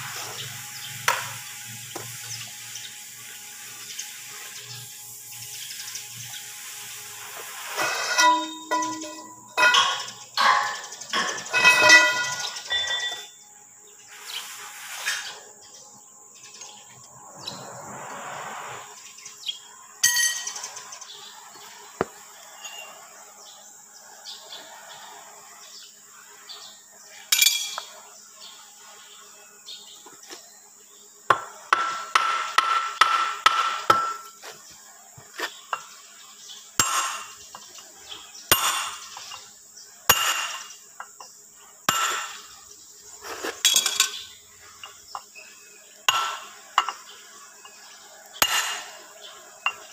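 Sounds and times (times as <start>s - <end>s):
hammer striking steel parts: 7.8s - 13.3s, 27.3s - 27.9s, 31.3s - 34.3s, 36.8s - 37.4s, 38.5s - 39.4s, 40.1s - 41.2s, 41.9s - 42.5s, 46.1s - 47.1s, 48.4s - 49.0s
ringing metal taps: 8.1s - 13.3s.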